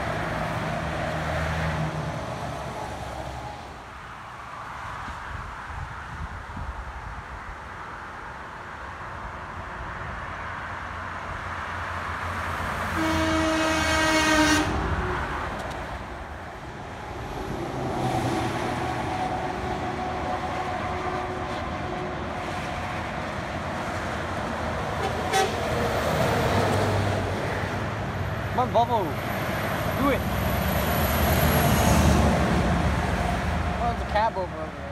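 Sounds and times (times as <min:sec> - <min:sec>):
highway traffic passing: 0:00.0 - 0:34.9
vehicle horn: 0:12.9 - 0:14.8, 0:25.0 - 0:25.7.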